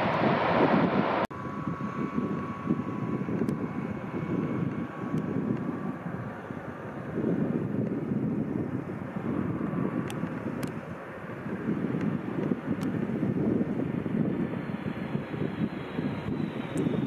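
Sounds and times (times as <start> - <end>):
loud rushing noise: 0.0 - 7.4
low rumble: 0.0 - 16.6
jet engine whine: 0.0 - 17.0.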